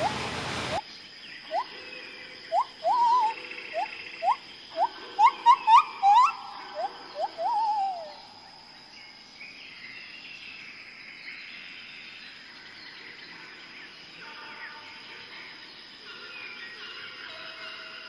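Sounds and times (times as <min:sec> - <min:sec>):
bird calls: 0:00.0 - 0:10.2.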